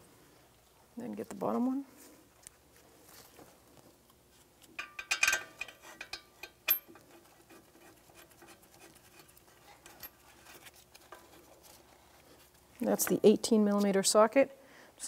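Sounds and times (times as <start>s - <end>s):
metal tools clinking: 4.8s - 7.1s.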